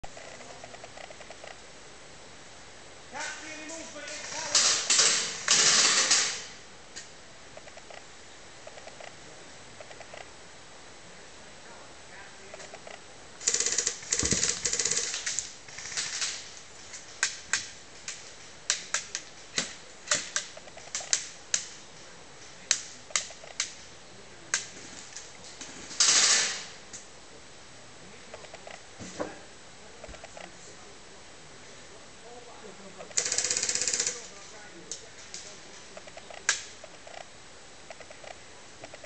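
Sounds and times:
airsoft gun rapid fire rattle: 4.2 - 6.5, 13.4 - 19.3, 33.1 - 34.4.

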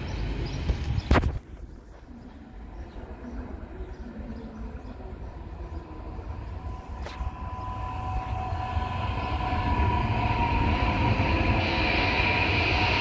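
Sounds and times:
electric train rumble and whine: 0.0 - 13.0.

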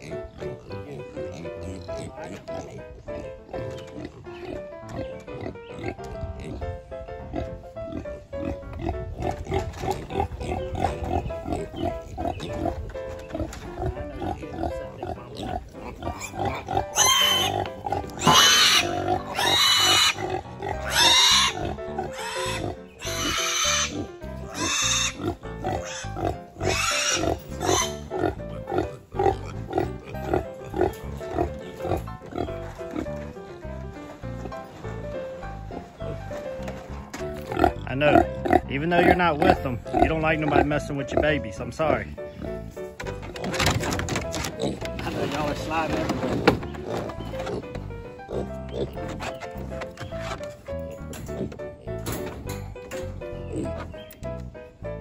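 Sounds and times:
piglet squealing: 15.0 - 31.4.

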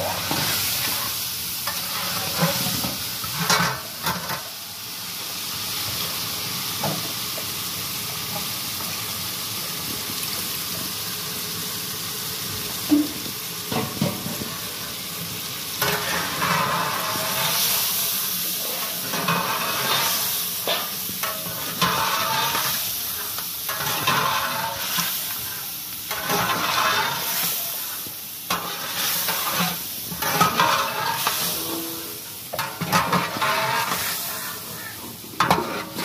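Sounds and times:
food sizzling in metal pot: 0.0 - 36.0
ladle stirring and scraping: 26.1 - 27.6, 28.5 - 31.8, 32.5 - 36.0.

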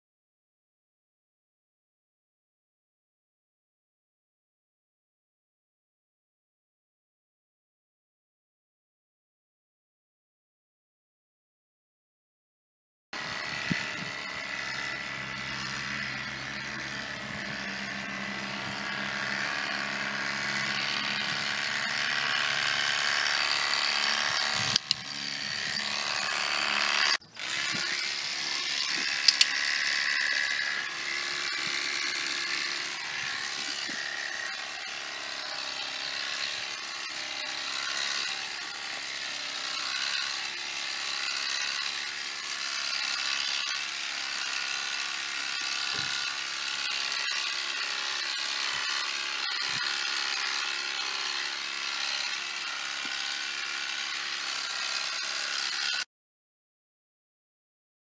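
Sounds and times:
electric clippers buzzing: 13.2 - 56.1
sharp clicks: 28.8 - 29.6.

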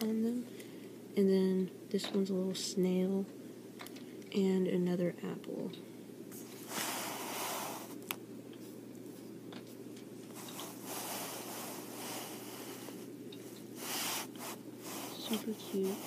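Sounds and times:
faint steady hum: 0.0 - 16.0
hands rustling a blanket: 6.4 - 13.1.

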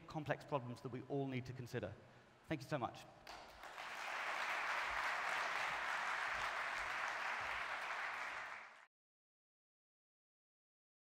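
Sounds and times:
audience applauding: 3.4 - 8.9.

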